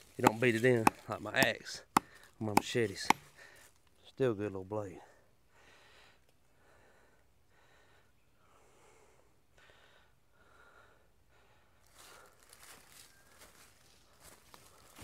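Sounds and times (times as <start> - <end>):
dry leaves crackling underfoot: 0.0 - 1.3, 11.8 - 15.0
faint soft rustling: 11.8 - 15.0.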